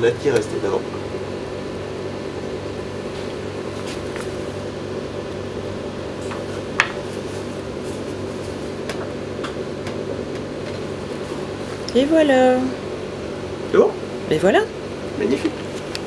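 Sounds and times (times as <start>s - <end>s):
ventilation fans humming: 0.0s - 16.0s.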